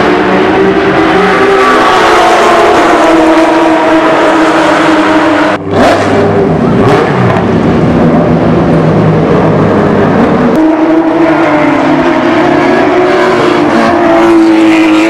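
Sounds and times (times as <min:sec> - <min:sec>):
race car engines at speed: 0:00.0 - 0:15.0.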